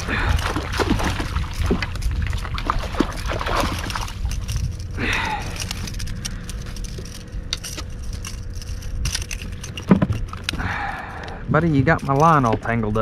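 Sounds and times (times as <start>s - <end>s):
water splashing: 0.0s - 5.6s
wind rumbling on microphone: 0.0s - 13.0s.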